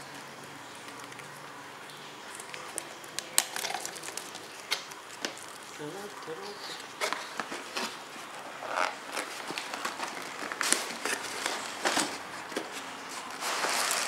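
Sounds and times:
cardboard scraping and rustling: 6.8 - 14.0.

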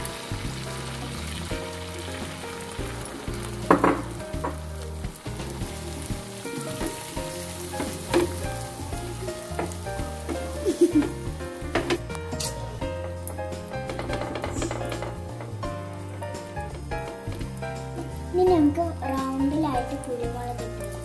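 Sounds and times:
omelette sizzling in a pan: 0.0 - 21.0
knocks in a pan: 1.6 - 5.8, 7.8 - 12.2, 13.0 - 18.2.

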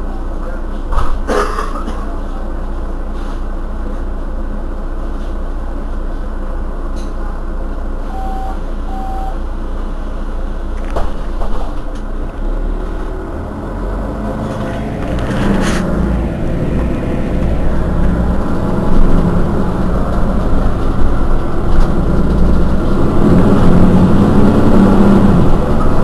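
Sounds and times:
bus engine running: 0.0 - 26.0
short electronic beeps: 8.1 - 9.4.

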